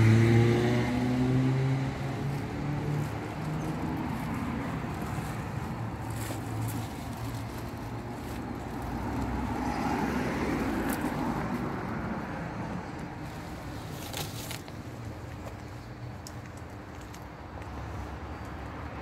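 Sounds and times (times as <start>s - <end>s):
vehicle passing: 0.0s - 14.6s.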